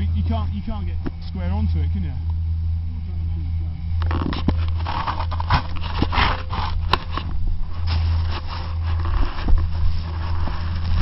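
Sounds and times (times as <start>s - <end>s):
steady low hum: 0.0s - 11.0s
camera rubbing on snow and clothing: 4.1s - 11.0s.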